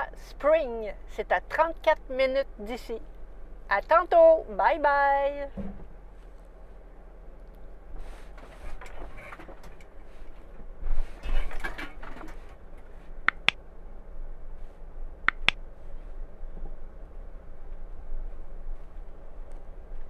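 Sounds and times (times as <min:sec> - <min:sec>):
sharp clicks: 0:13.2 - 0:13.6, 0:15.2 - 0:15.6.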